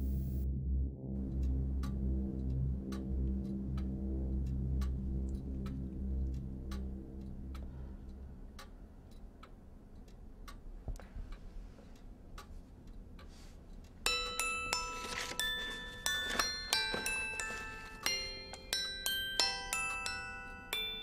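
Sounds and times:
low held drone: 0.0 - 8.5
clock ticking: 0.0 - 21.0
music of ringing struck notes: 14.1 - 21.0.

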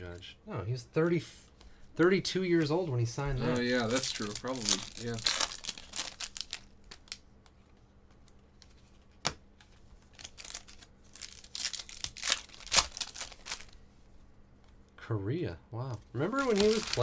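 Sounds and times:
card packs crinkling: 3.4 - 7.2, 10.0 - 13.8, 16.2 - 17.0.

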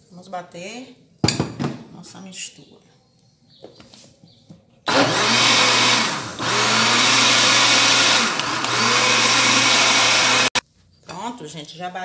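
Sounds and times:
electric blender running: 4.9 - 10.6.

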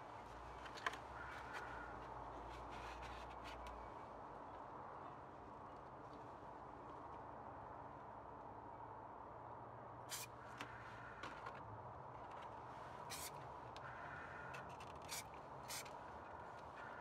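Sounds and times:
spray paint can hissing: 13.1 - 13.3, 15.1 - 15.9.

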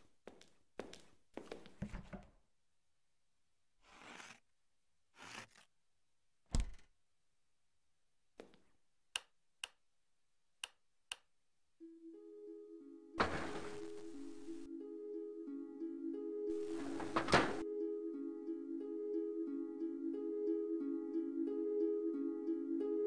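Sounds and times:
held musical notes: 11.8 - 23.0.

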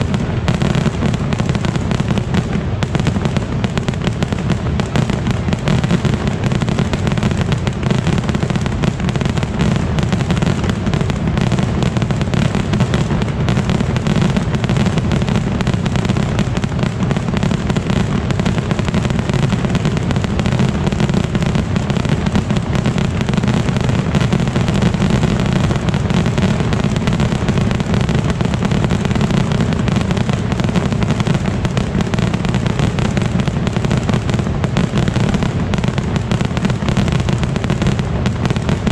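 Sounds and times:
fireworks launching and bursting: 0.0 - 38.9.

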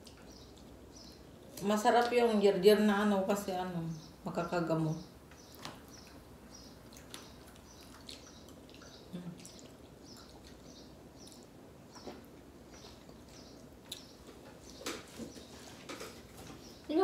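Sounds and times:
wet eating mouth sounds: 5.9 - 15.1.

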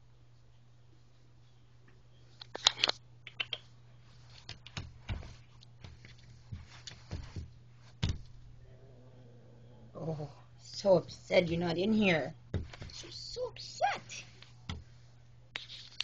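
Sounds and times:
steady low hum: 0.0 - 15.8
hand tapping and scratching carpet: 3.4 - 8.6, 12.5 - 13.2.

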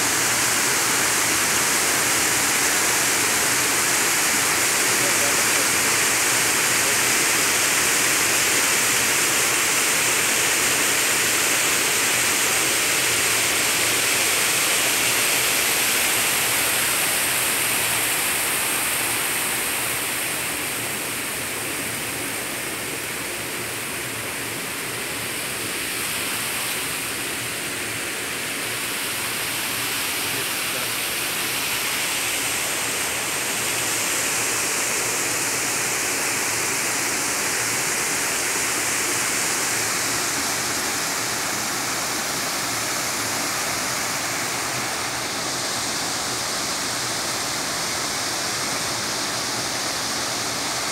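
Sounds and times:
steady rushing hiss: 0.0 - 50.9.

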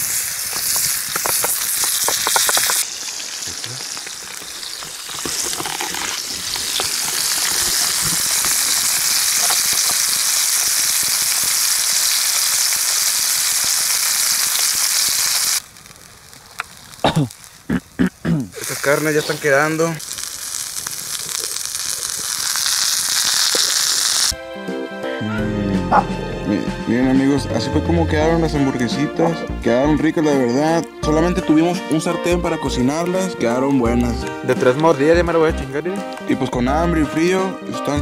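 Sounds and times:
burger patty sizzling in frying pan: 0.0 - 24.4.

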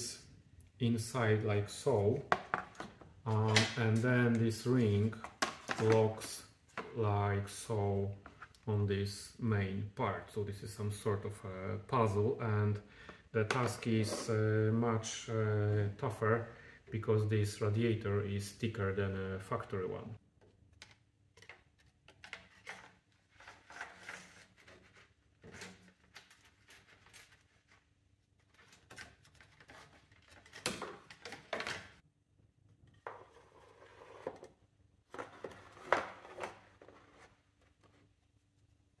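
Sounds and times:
plastic parts clicking and scraping: 28.6 - 32.0.

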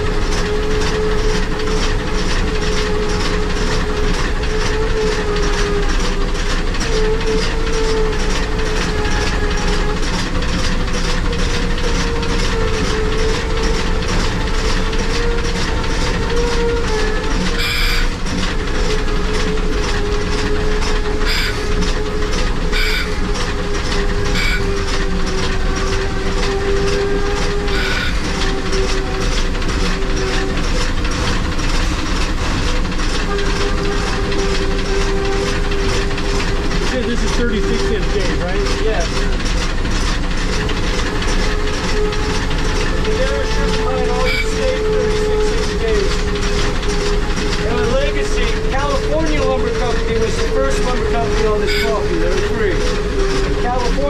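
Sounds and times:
sharp clanks or squeals: 0.0 - 54.0
steam locomotive exhaust chuffs: 0.0 - 54.0
steady wavering tone: 21.2 - 29.3.

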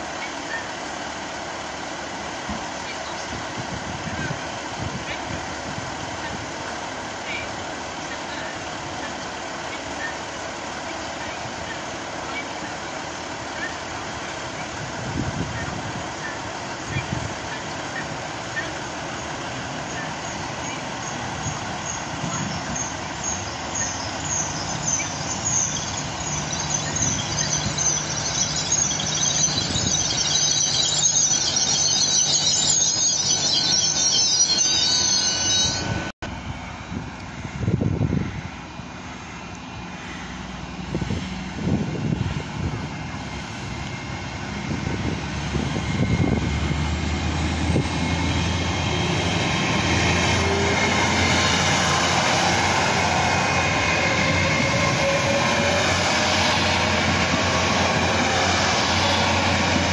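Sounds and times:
diesel engine hum: 0.0 - 59.9
train rumble: 0.0 - 59.9
train brakes squealing: 15.4 - 36.1, 43.2 - 59.9.

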